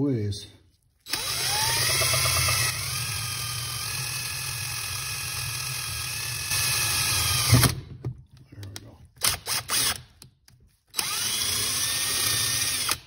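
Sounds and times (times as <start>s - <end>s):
electric drill boring into metal: 1.1s - 7.8s, 11.0s - 13.0s.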